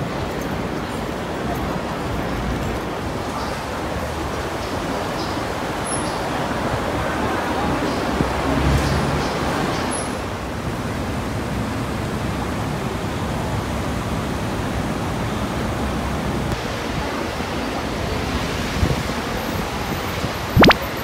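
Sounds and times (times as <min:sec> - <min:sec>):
busy city ambience: 0:00.0 - 0:21.0
sharp click: 0:20.6 - 0:20.8.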